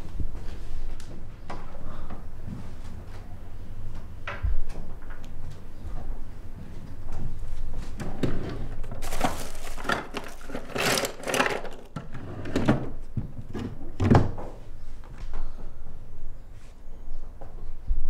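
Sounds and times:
drawer opening and shutting: 8.0s - 14.4s
things knocking in drawer: 8.2s - 14.4s
rustling: 9.0s - 11.9s.

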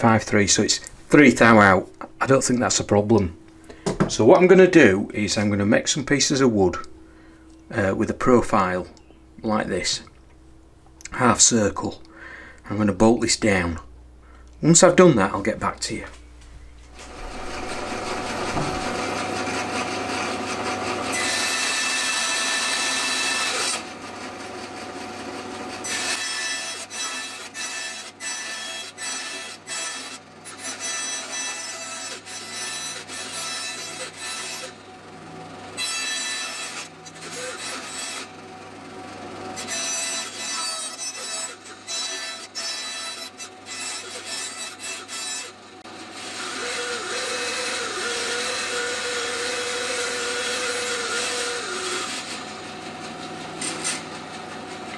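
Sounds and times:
bandsaw cutting wood: 17.0s - 54.9s.

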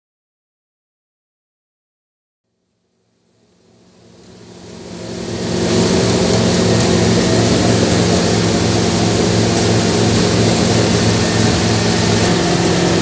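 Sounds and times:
motorboat engine drone: 3.0s - 13.0s
rush of wind and water: 4.8s - 13.0s.

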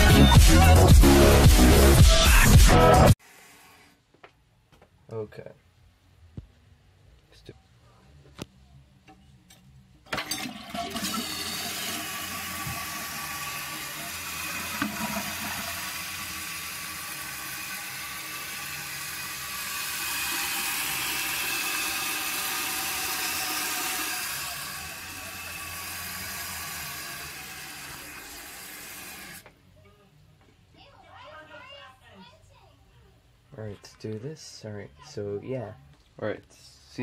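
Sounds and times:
water rushing out of tank: 10.2s - 29.4s
fill valve hissing: 10.6s - 29.4s.

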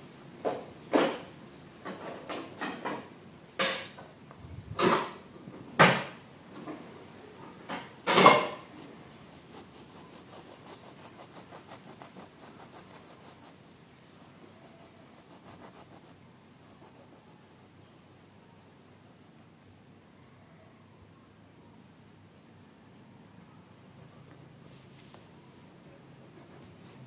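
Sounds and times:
knife sawing through bread: 8.8s - 13.6s, 14.2s - 17.6s.

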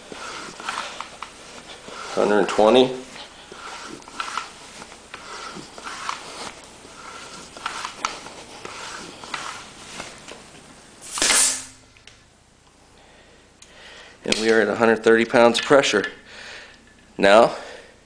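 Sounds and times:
floor pump air whoosh: 0.0s - 11.9s
hiss of air from valve: 11.0s - 11.8s.

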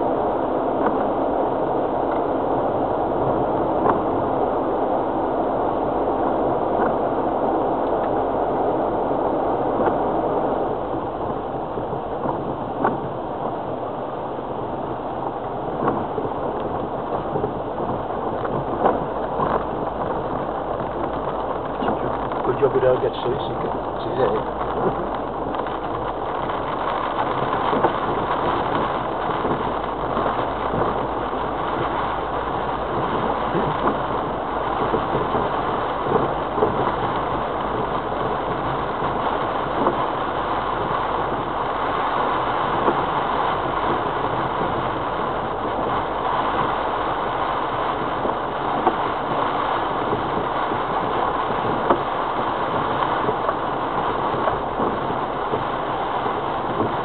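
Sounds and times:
tyre noise on rough track: 11.5s - 57.0s
vehicle knocks and rattles: 14.6s - 47.1s.

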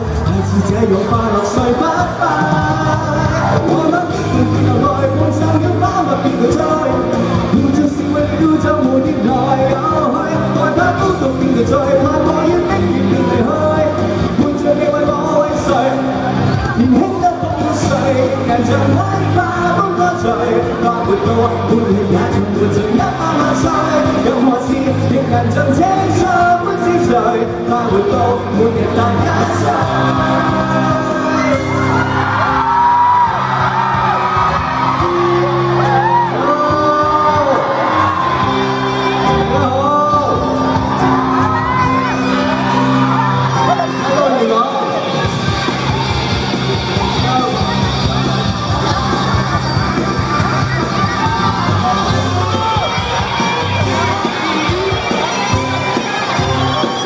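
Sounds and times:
man singing into a microphone: 0.0s - 32.5s, 35.8s - 42.2s
instrumental backing music: 0.0s - 57.0s.

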